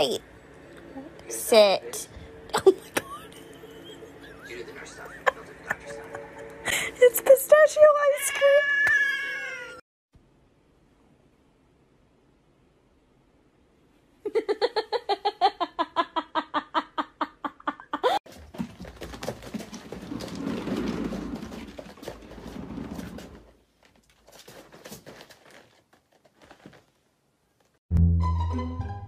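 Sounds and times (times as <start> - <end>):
cat exercise wheel rumbling: 18.3 - 26.8
plucked string music: 27.9 - 29.0.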